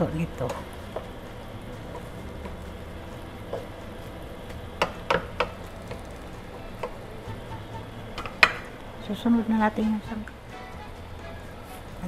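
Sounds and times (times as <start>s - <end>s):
meat sizzling in a pan: 0.0s - 9.7s
spatula knocking against pan: 4.5s - 8.8s.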